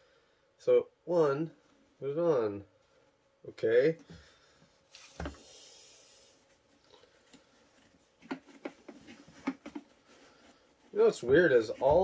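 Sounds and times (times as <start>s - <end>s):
soft rustle: 4.2s - 12.0s.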